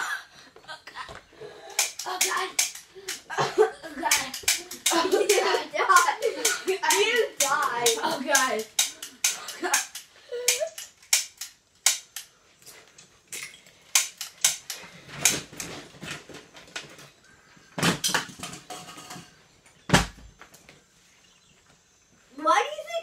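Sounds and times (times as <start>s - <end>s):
toy pistol cracks: 1.7s - 3.3s, 4.0s - 12.3s, 13.9s - 15.4s.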